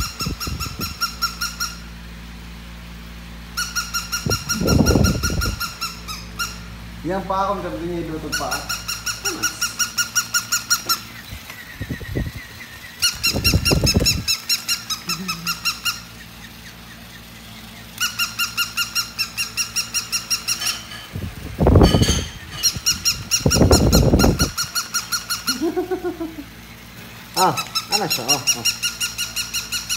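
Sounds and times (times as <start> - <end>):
toy dog electronic chirps: 3.6 - 6.6, 12.6 - 20.7.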